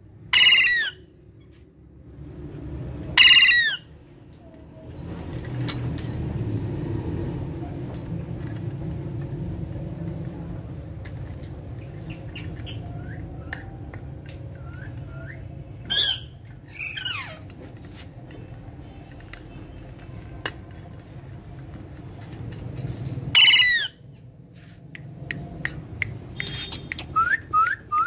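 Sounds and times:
parakeet screeching: 0.3 - 1.0, 3.2 - 3.9, 14.6 - 17.4, 23.3 - 24.0
parakeet chirps: 0.4 - 1.0, 3.2 - 3.8, 11.8 - 13.6, 23.4 - 24.0
beaks and claws clicking on cage: 11.0 - 17.9, 25.0 - 28.0.

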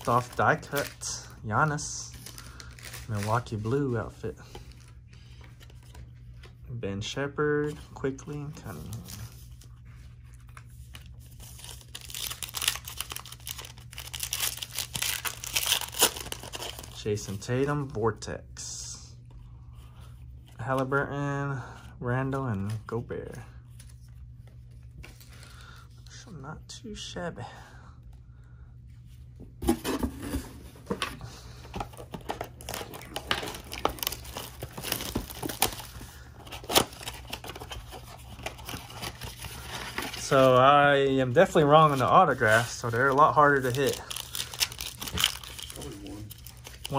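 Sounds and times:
plastic wrapper crinkling and tearing: 0.0 - 3.5, 10.4 - 17.1, 32.0 - 46.9.

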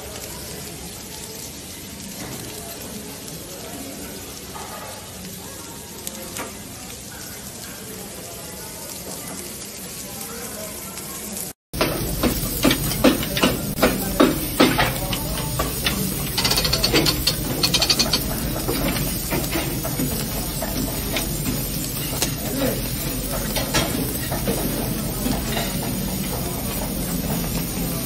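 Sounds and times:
meat sizzling on grill: 0.0 - 28.0
fat hissing on coals: 9.3 - 28.0
metal skewers clacking: 11.8 - 27.6
fine ticking: 15.2 - 18.5.

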